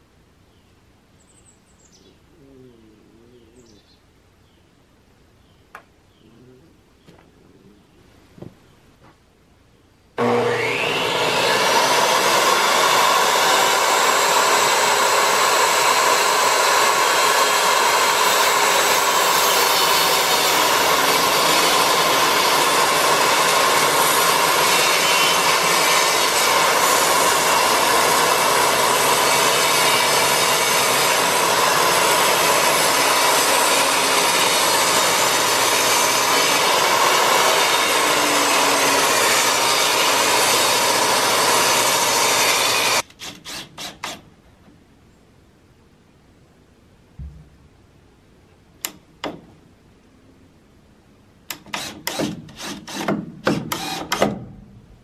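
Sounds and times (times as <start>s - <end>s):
table saw cutting wood: 10.2s - 44.1s, 51.6s - 54.2s.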